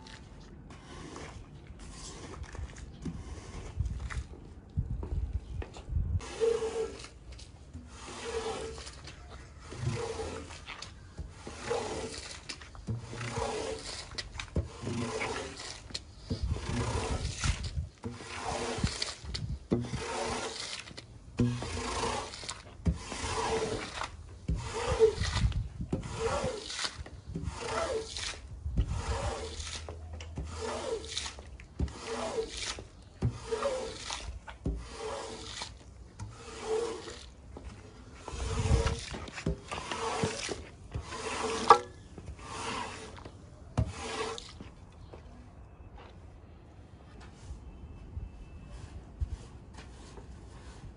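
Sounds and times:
squeegee rasping on wet carpet: 6.2s - 37.4s, 38.0s - 44.7s.

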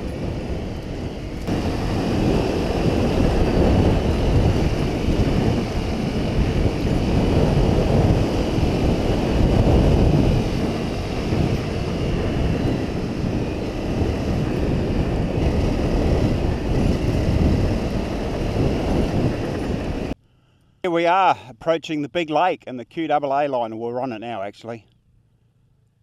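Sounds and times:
wind buffeting microphone: 0.0s - 20.2s
motorcycle engine: 0.0s - 20.8s, 24.8s - 26.0s.

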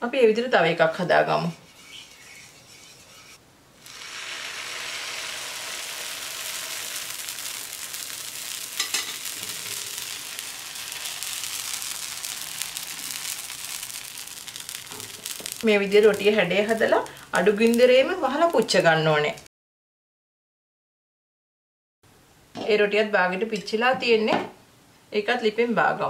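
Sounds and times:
batter sizzling in frying pan: 1.6s - 19.5s.

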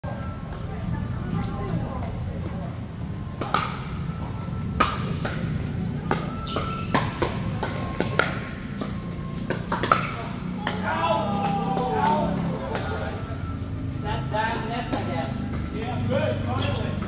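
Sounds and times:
paddles hitting plastic ball: 4.6s - 10.9s.

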